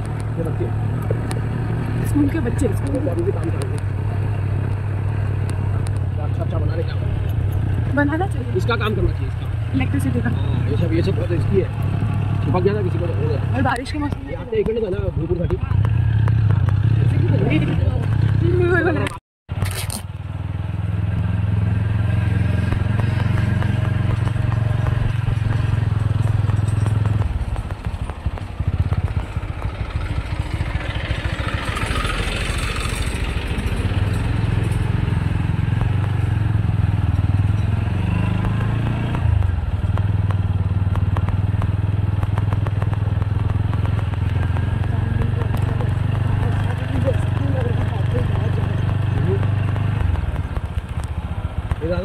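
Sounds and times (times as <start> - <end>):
small motorcycle engine humming: 20.4 - 52.0.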